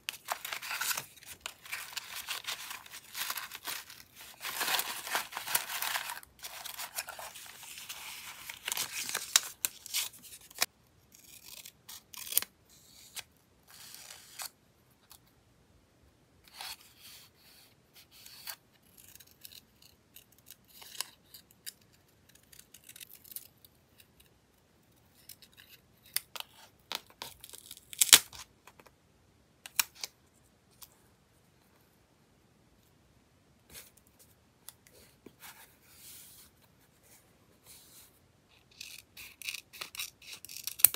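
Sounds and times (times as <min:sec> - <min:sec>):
paper scraps rustling: 0:00.1 - 0:10.7
scissors snipping paper: 0:00.1 - 0:12.5.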